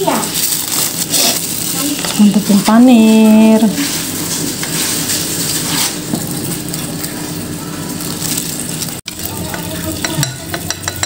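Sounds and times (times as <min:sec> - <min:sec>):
breadcrumbs crunching and rustling: 0:00.1 - 0:09.5.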